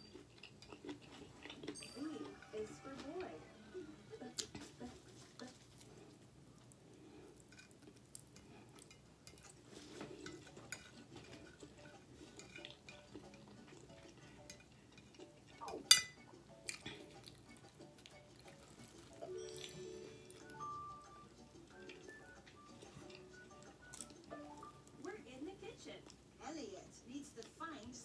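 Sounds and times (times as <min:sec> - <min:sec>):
fork clinking on ceramic plate: 0:15.8 - 0:16.8.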